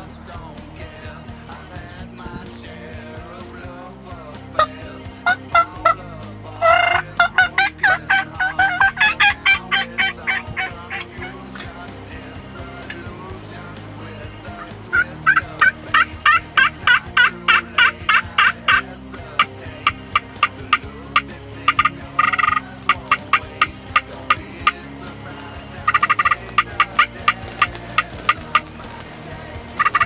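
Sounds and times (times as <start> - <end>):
turkey yelping: 4.6 - 11.7, 14.5 - 30.0
turkey clucking: 4.6 - 30.0
turkey gobbling: 4.6 - 30.0.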